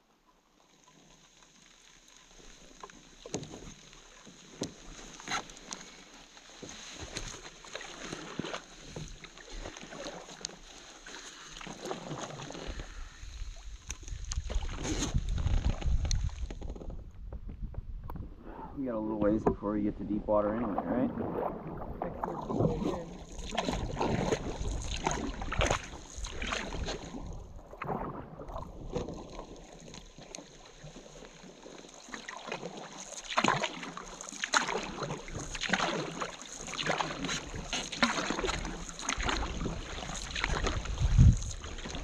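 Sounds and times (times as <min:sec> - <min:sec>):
paddle splashing water: 0:00.0 - 0:42.0.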